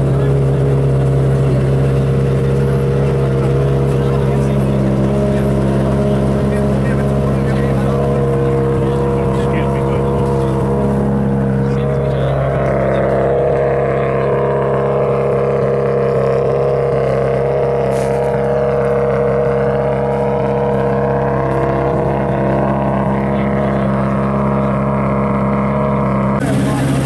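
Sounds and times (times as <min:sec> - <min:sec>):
car engine idling: 0:00.0 - 0:27.0.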